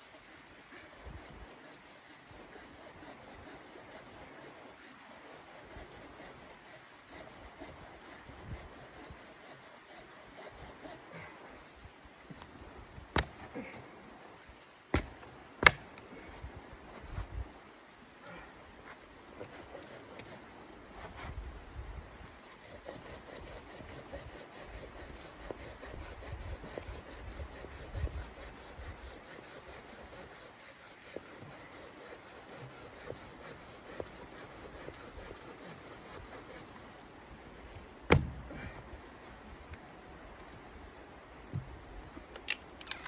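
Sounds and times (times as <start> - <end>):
hand saw cutting wood: 0.0 - 11.3, 19.4 - 20.5, 22.3 - 37.0
sharp wood crack: 14.9 - 16.0, 38.1 - 38.4.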